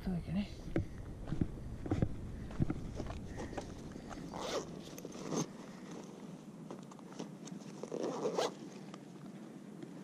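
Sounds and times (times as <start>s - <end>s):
fabric backpack rustling: 2.8s - 8.9s.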